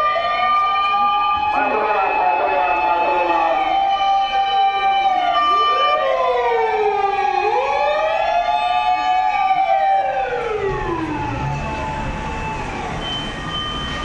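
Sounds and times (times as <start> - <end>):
emergency sirens wailing: 0.0 - 14.0.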